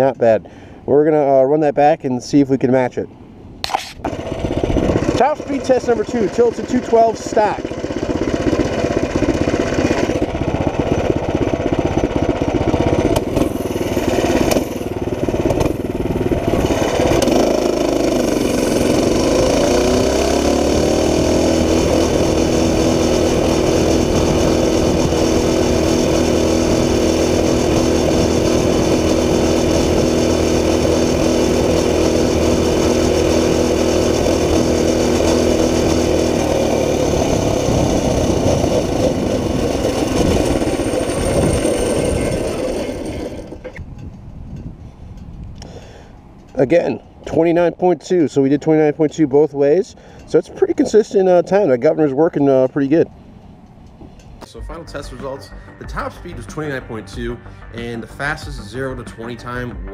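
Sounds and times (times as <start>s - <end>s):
minibike engine at full throttle: 4.1s - 46.2s.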